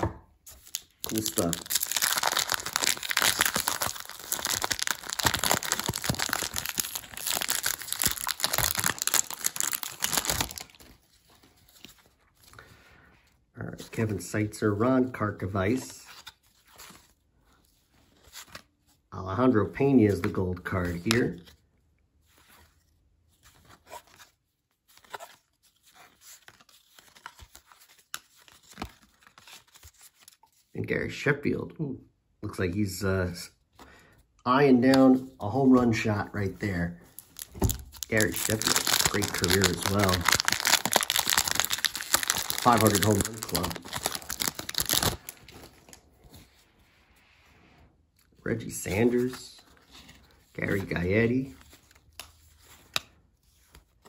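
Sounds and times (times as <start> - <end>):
card pack wrapper tearing and crinkling: 0.5 - 12.0, 36.6 - 46.0.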